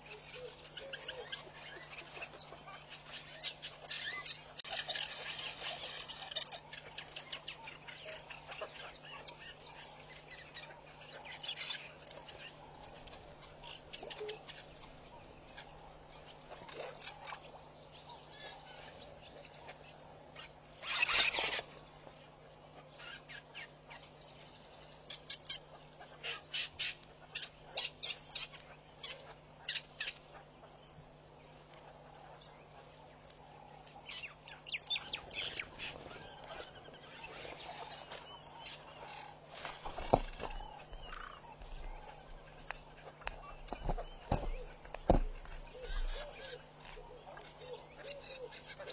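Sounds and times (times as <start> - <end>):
bird chirps: 0.0 - 24.3, 33.6 - 48.9
insects chirping: 0.0 - 48.9.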